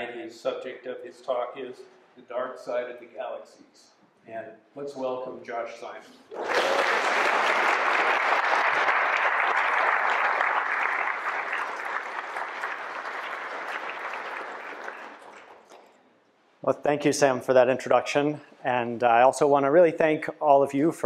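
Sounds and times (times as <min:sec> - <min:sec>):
audience applauding: 0:06.3 - 0:15.8.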